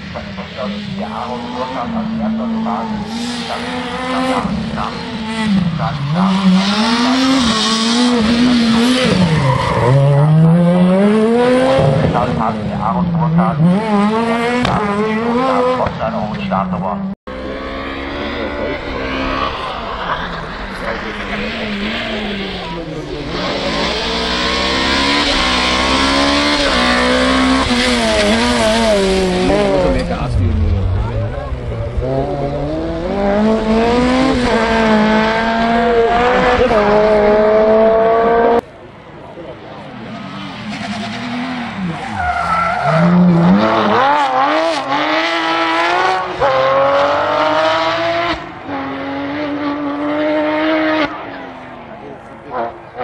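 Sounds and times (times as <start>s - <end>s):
car engine accelerating hard: 0.0s - 16.3s, 17.3s - 38.7s, 39.3s - 53.0s.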